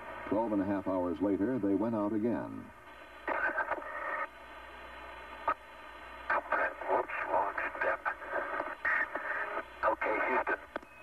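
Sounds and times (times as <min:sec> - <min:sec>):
radio static: 0:00.1 - 0:10.8
muffled radio transmissions: 0:00.1 - 0:11.0.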